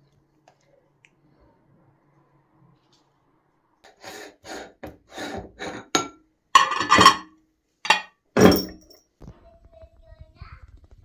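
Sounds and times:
metal spoon scraping metal: 4.4s - 7.3s
metal clanks and clinks: 5.8s - 7.3s, 7.9s - 9.0s.

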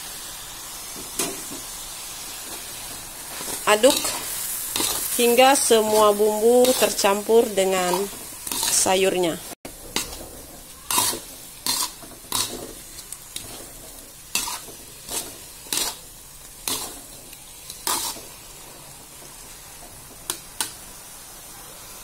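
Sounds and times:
faint sizzle: 0.0s - 22.0s
metal spatula scraping a wok: 2.5s - 18.6s.

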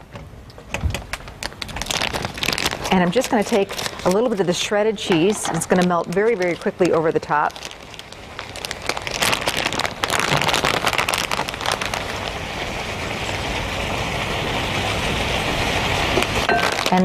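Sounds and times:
plastic bag crinkling: 1.0s - 13.6s, 16.1s - 17.0s.

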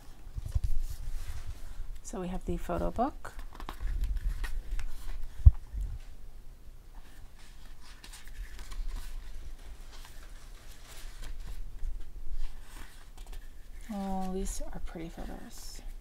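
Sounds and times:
paper pages rustling: 0.0s - 1.8s, 2.8s - 6.1s, 6.9s - 15.9s.

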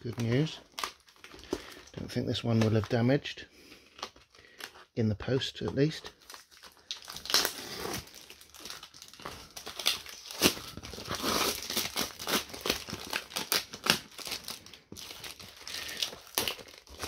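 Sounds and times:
knife slitting packing tape: 9.7s - 14.4s
tape ripping off: 9.7s - 14.4s
cardboard creasing: 9.8s - 17.0s.

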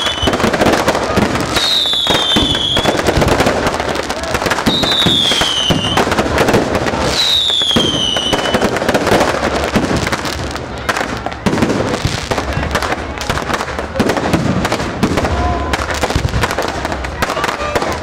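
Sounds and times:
falling firework whistle: 0.0s - 6.2s, 7.0s - 9.0s
fireworks crackling and banging: 0.0s - 18.0s.

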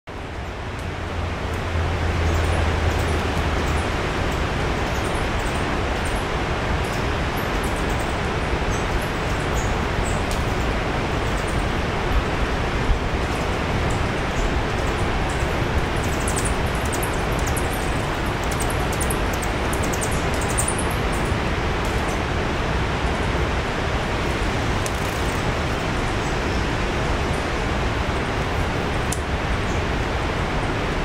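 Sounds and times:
steady outdoor rushing noise: 0.1s - 31.0s.

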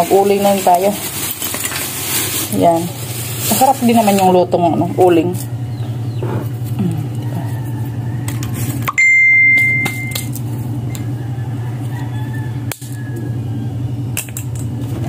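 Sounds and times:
steady low hum: 0.0s - 15.0s
bright metallic ding: 8.9s - 10.3s.

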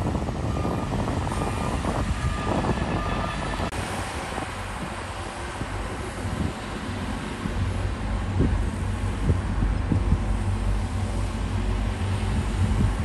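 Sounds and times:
diesel engine rumbling drone: 0.0s - 13.0s.

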